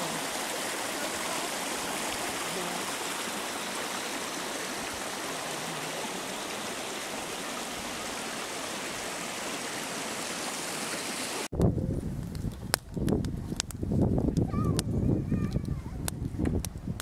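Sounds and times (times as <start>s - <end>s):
stream water flowing: 0.0s - 11.5s.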